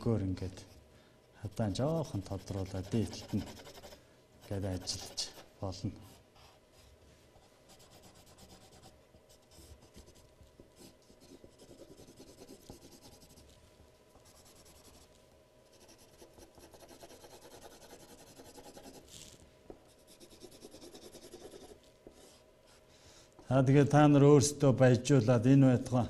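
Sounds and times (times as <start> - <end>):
coloured pencil scratching on paper: 1.5 - 6.6, 7.7 - 10.2, 10.8 - 13.4, 14.2 - 15.1, 15.7 - 19.2, 20.0 - 22.4.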